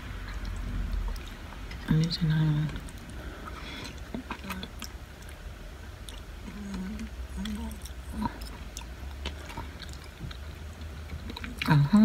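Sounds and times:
person chewing and slurping noodles: 2.7 - 11.7.

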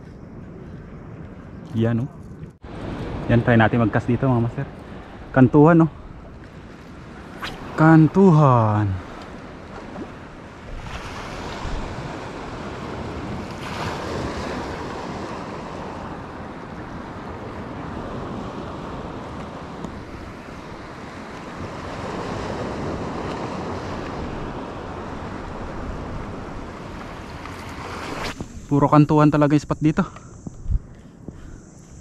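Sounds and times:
sea waves washing ashore: 2.6 - 29.5
wind noise on microphone: 9.0 - 32.0.

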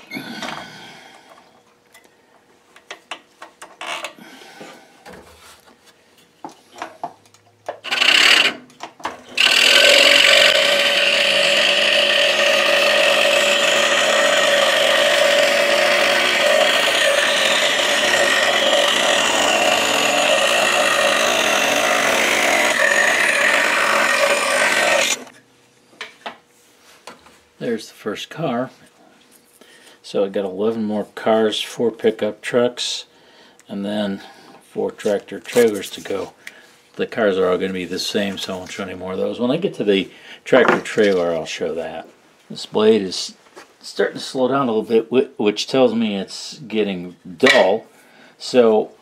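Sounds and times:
scroll saw cutting wood: 7.8 - 8.7, 9.3 - 25.3.

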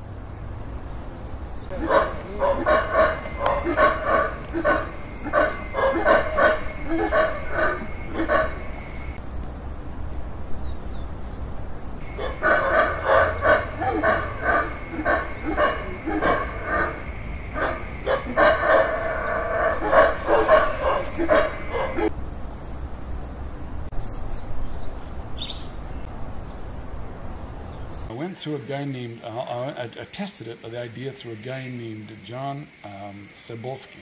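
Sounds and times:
animals barking or clucking: 1.7 - 9.2, 12.0 - 22.1.

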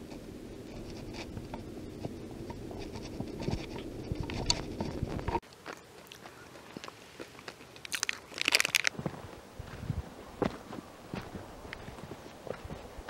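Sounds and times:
low rumble with clicks: 0.0 - 5.4
crunchy chewing: 0.0 - 9.2
plastic wrapper crinkling: 7.8 - 9.0.

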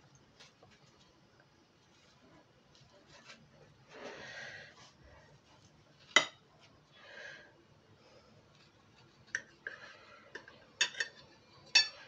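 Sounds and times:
knife clinking on plate: 10.8 - 12.0.

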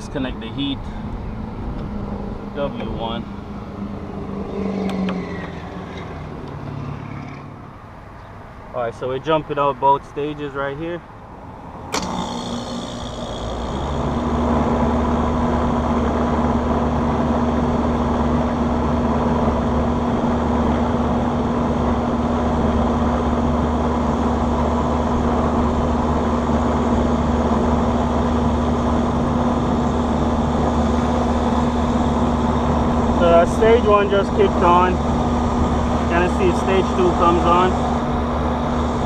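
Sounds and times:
air conditioning unit humming: 0.0 - 4.4, 7.6 - 39.0.

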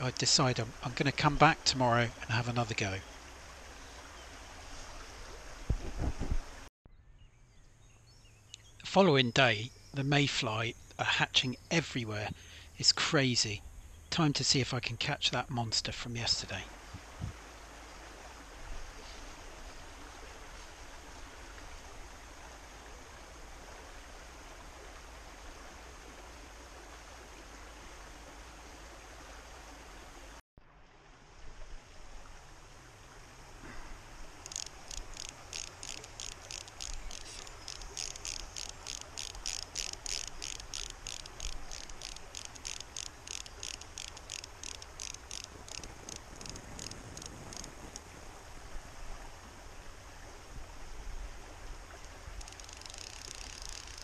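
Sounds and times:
small stream flowing: 0.0 - 6.7, 7.8 - 54.0
rapid high-pitched ticks: 34.4 - 48.0, 52.4 - 54.0.

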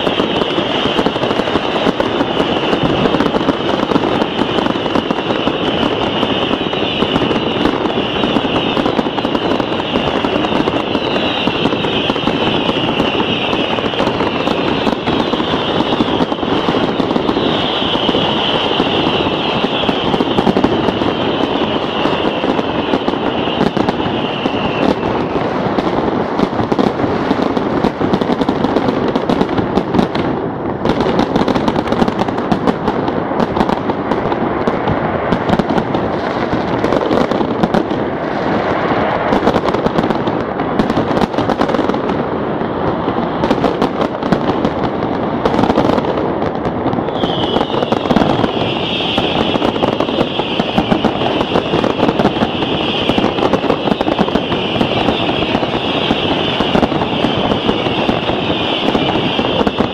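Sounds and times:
firecrackers crackling: 0.0 - 59.9
wavering high whistle: 5.0 - 16.2, 17.3 - 25.2, 47.1 - 53.6.

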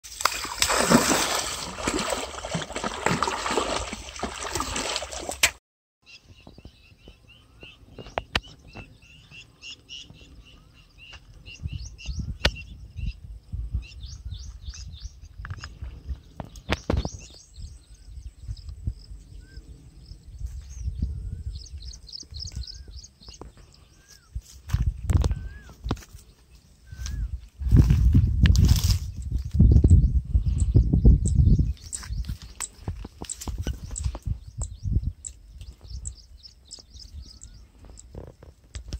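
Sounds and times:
fish splashing in water: 0.0 - 5.6
birds chirping: 6.0 - 28.3, 29.0 - 38.9.

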